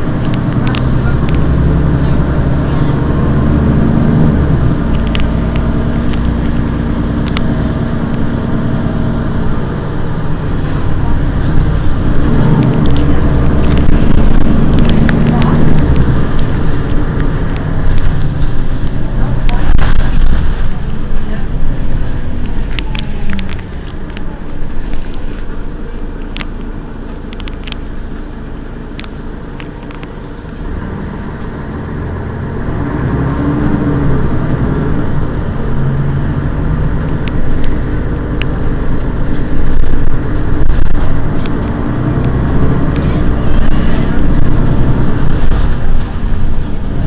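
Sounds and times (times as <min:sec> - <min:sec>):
bus engine idling: 0:00.0 - 0:47.0
street noise: 0:00.0 - 0:47.0.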